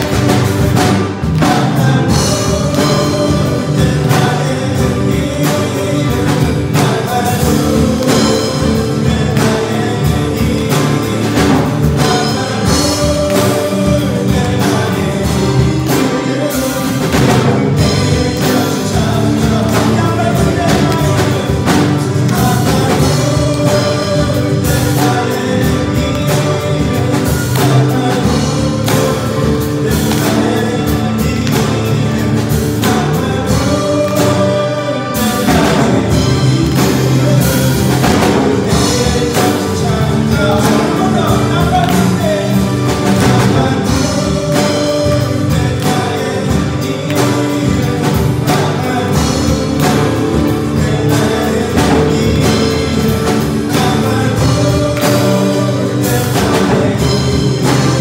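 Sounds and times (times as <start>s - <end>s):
acoustic guitar: 0.0s - 58.0s
bass: 0.0s - 58.0s
drum kit: 0.0s - 58.0s
keyboard: 0.0s - 58.0s
voices singing: 0.0s - 58.0s.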